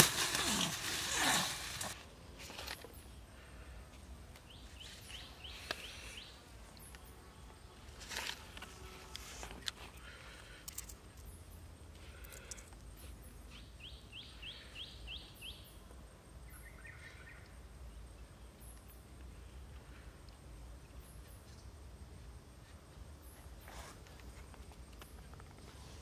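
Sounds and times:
faint rustles and clicks: 0.0s - 3.2s, 22.5s - 26.0s
bird chirping: 12.4s - 19.6s.

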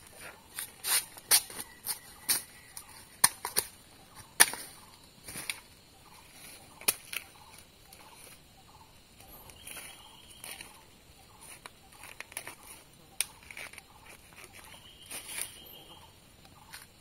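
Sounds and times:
scraping and rustling leaves: 0.0s - 17.0s
digging tool striking soil: 0.6s - 5.6s.

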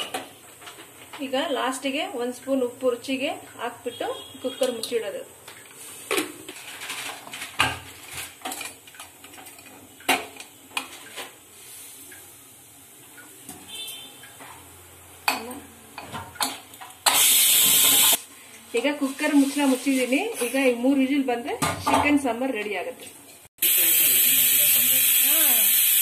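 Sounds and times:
pressure cooker hiss: 11.5s - 13.5s, 17.0s - 18.3s, 23.6s - 26.0s.

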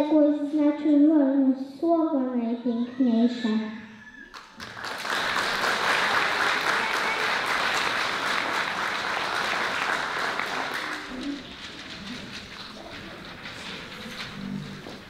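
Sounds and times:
audience applauding: 4.3s - 15.0s.

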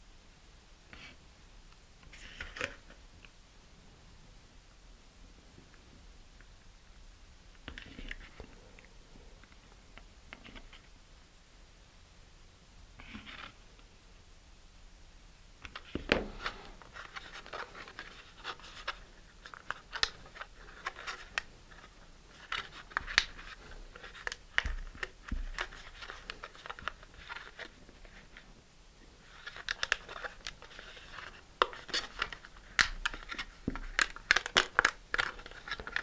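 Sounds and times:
plastic sheet crinkling and crackling: 29.2s - 36.0s.

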